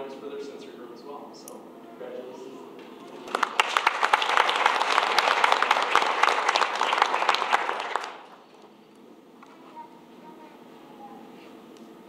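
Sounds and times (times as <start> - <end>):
audience applause: 3.1 - 8.7.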